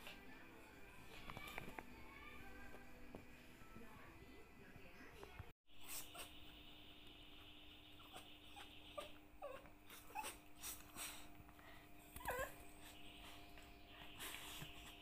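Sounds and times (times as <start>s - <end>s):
small animal whimpering cries: 8.0s - 10.8s, 12.1s - 13.0s.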